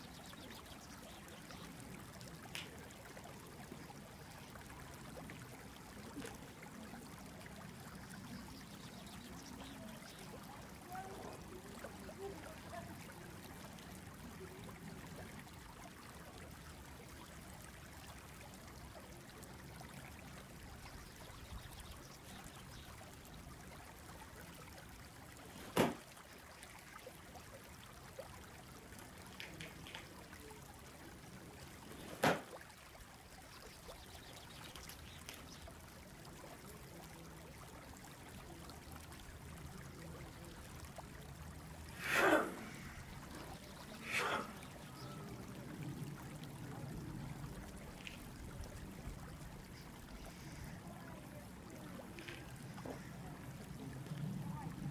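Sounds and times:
faint hiss: 41.7 - 46.2.

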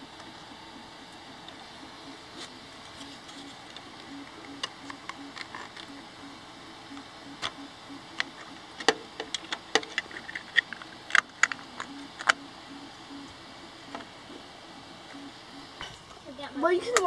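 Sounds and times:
plastic parts clicking and tapping: 3.7 - 5.9, 7.0 - 12.4.

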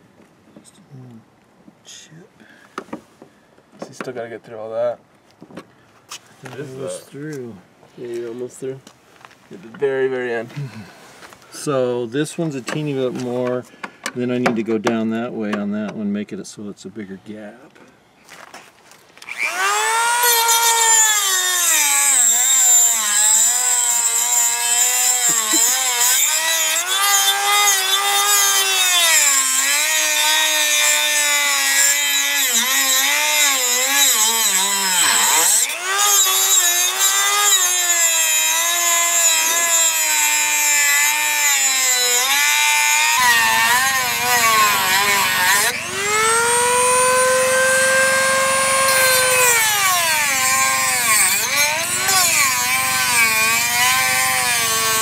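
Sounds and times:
rotary tool grinding metal: 19.2 - 55.0.

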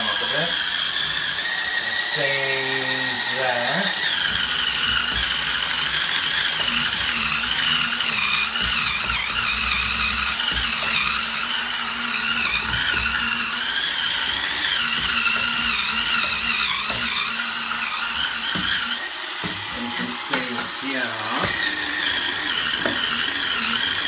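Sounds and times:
spin scrubber motor whine: 0.0 - 24.0.

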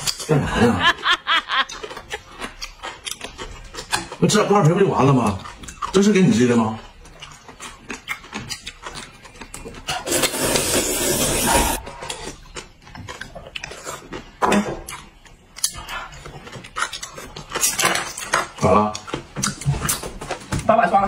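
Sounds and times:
chewing: 1.5 - 10.6, 11.8 - 20.6
loud slurp of noodles: 10.0 - 11.9.

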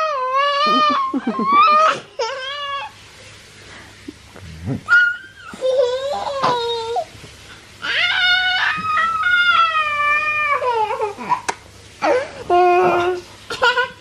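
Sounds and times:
young child squealing and laughing: 0.0 - 3.0, 4.9 - 6.4, 7.8 - 11.5.

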